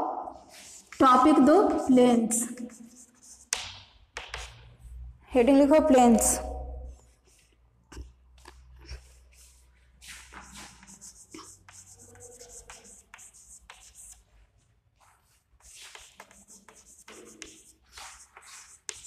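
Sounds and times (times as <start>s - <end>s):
chalk scratching on blackboard: 0.4s - 4.7s, 8.5s - 14.4s, 15.0s - 19.0s.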